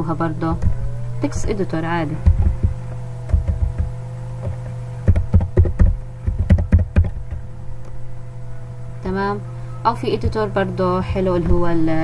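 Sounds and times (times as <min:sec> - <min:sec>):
background hum: 0:00.0 - 0:12.0
keyboard typing: 0:02.3 - 0:07.4.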